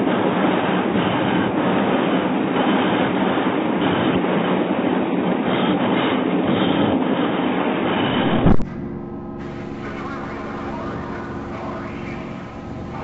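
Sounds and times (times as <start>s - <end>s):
muffled car driving on highway: 8.1s - 13.0s.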